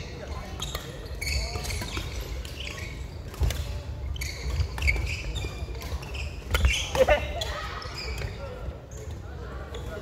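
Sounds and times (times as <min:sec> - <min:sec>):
shoes squeaking on wooden floor: 0:04.0 - 0:07.0.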